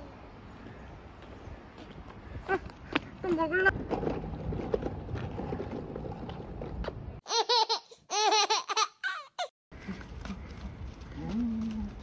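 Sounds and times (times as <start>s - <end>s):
outdoor background noise: 0.0s - 12.0s
baby laughing: 7.2s - 9.5s.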